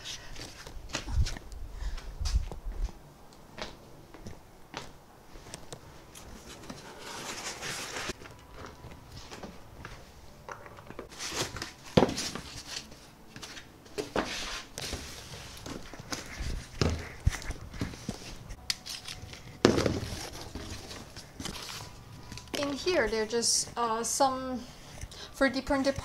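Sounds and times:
rustling and scraping of packing: 0:05.4 - 0:23.8.

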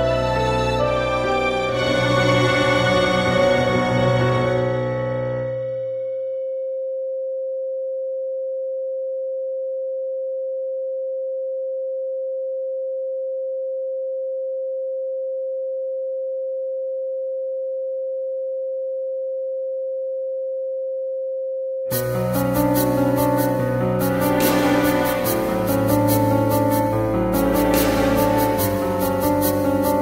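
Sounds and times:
steady sine tone: 0:05.4 - 0:30.0.

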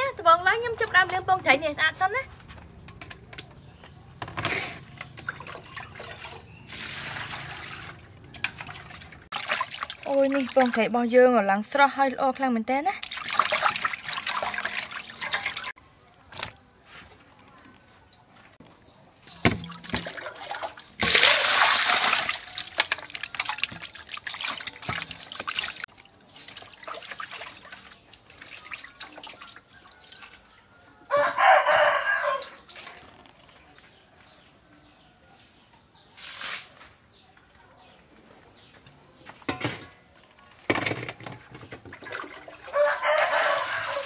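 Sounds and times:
water splashing in metal basin: 0:04.9 - 0:11.1, 0:13.0 - 0:16.5, 0:19.2 - 0:30.5, 0:40.7 - 0:44.0
rooster crowing: 0:30.4 - 0:32.6, 0:42.6 - 0:44.0.

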